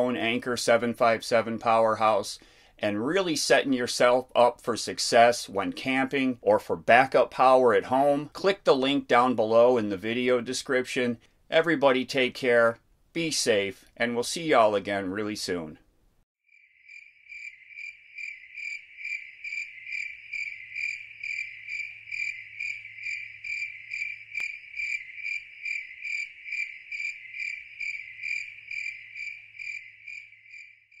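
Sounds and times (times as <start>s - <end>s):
cricket chirping: 16.5s - 31.0s.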